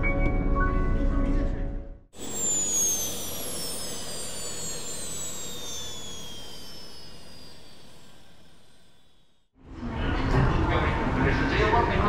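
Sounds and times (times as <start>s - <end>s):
whooshing zoom effect: 2.2s - 9.2s.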